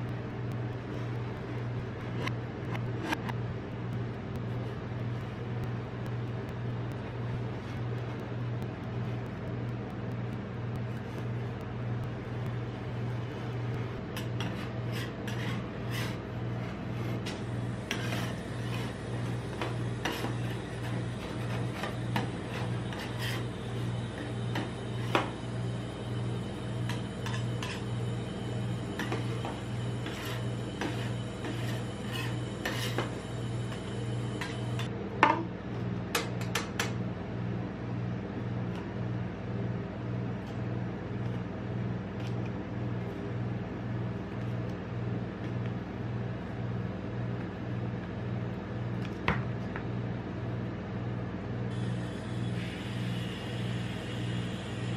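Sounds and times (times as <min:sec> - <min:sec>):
pulsing low hum: 0:00.0 - 0:34.9
metal spatulas scraping steel plate: 0:29.0 - 0:33.1.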